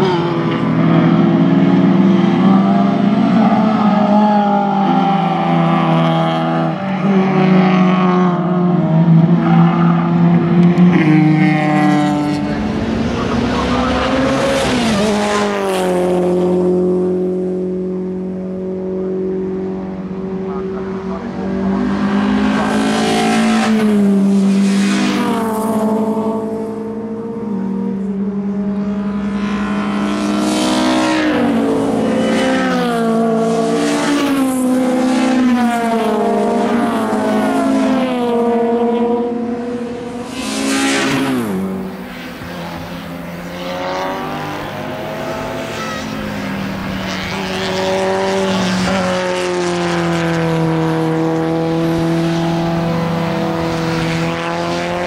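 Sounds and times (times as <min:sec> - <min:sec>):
racing car engines passing: 0:00.0 - 0:55.0.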